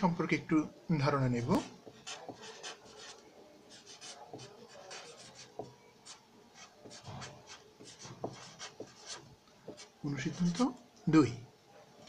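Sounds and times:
marker pen writing on paper: 1.5 - 10.8.

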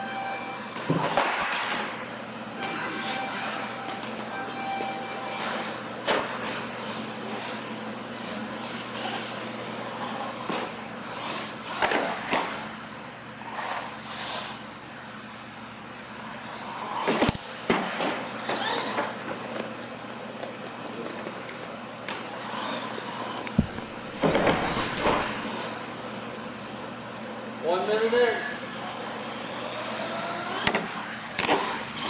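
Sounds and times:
toy trucks running on concrete: 6.4 - 12.2, 13.4 - 14.7, 16.1 - 17.4, 18.0 - 19.7, 22.2 - 25.7, 28.9 - 32.0.

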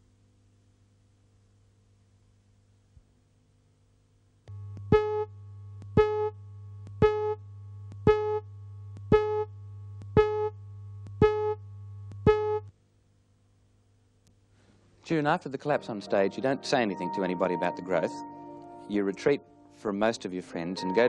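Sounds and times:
low buzz: 4.5 - 12.8.

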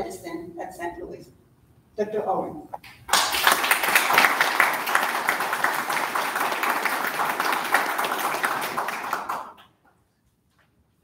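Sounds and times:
audience applauding: 3.1 - 9.7.

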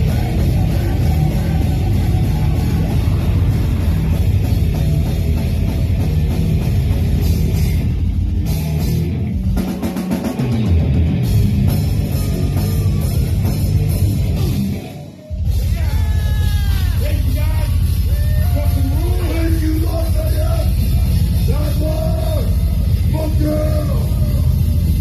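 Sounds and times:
heavy metal band playing: 0.0 - 25.0.

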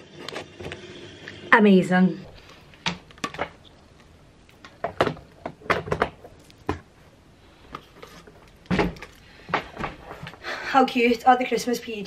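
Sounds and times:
sharp knocks and thumps: 4.8 - 6.9, 8.7 - 10.4.

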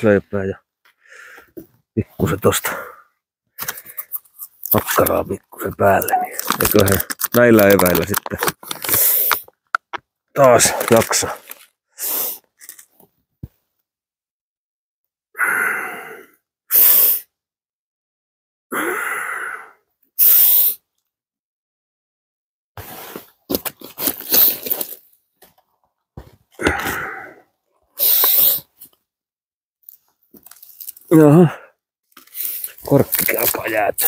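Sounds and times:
man breathing loudly: 1.0 - 1.6, 15.4 - 17.1, 18.7 - 19.8, 26.6 - 28.6
sharp hissing breath: 12.0 - 12.5, 15.4 - 17.3, 18.8 - 20.8, 28.0 - 28.7.

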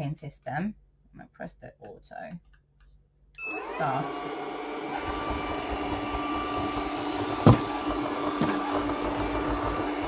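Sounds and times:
robot vacuum cleaner running: 3.4 - 10.0.

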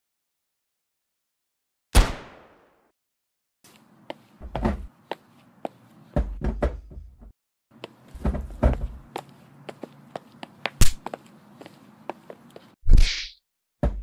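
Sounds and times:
knocks and thuds: 4.4 - 4.9, 6.2 - 7.3, 8.1 - 9.1, 13.8 - 14.0.

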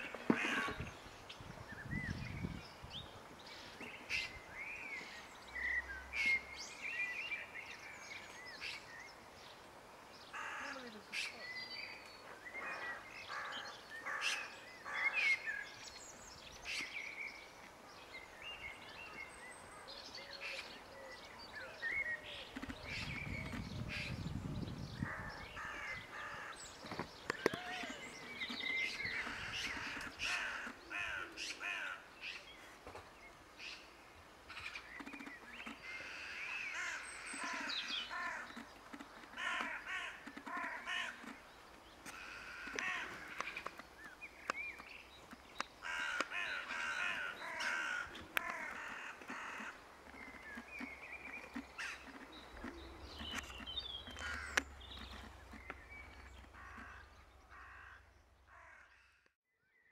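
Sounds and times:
crows cawing: 10.4 - 10.9, 25.0 - 26.6, 29.2 - 32.1, 35.8 - 38.5, 39.4 - 41.3, 42.1 - 43.6, 45.8 - 49.8, 54.1 - 55.2, 56.4 - 59.2
sharp bird clicks: 34.6 - 36.0, 36.8 - 41.4, 42.0 - 57.1.

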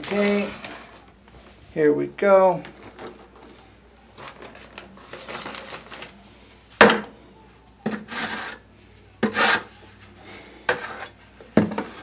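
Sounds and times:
trowel scraping mortar in bucket: 7.9 - 8.6, 9.2 - 9.7.

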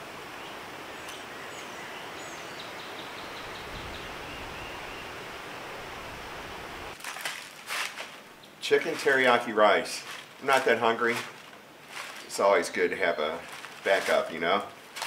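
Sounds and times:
light breeze rustling: 0.0 - 15.0
faint high bird chirps: 0.4 - 5.2
handling clicks and rustles: 7.0 - 15.0.

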